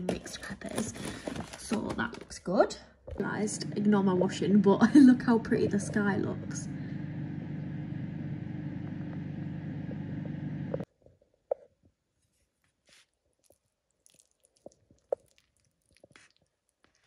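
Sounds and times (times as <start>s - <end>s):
steady low hum: 3.2s - 10.9s.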